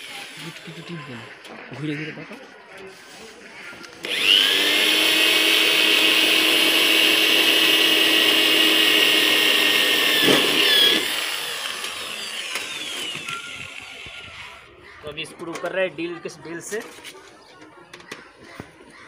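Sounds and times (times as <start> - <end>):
electric drill whining: 0.0 - 0.7, 4.0 - 14.7.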